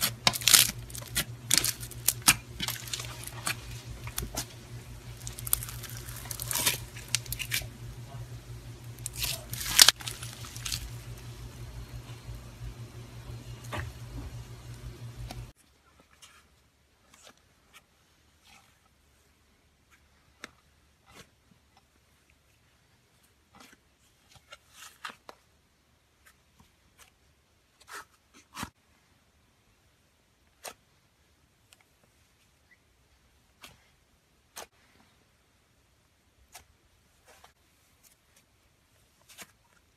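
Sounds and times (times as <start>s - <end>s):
slime crackling and squishing: 0.0s - 12.3s
steady low hum: 0.0s - 15.6s.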